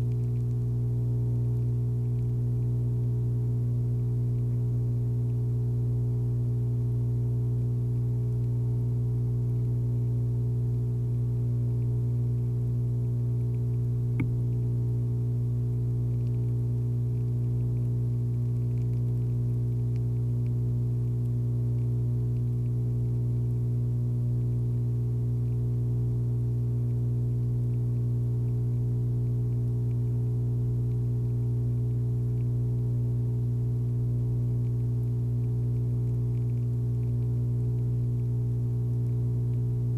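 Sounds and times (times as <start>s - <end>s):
low hum with overtones: 0.0s - 39.9s
faint click: 13.4s - 14.6s.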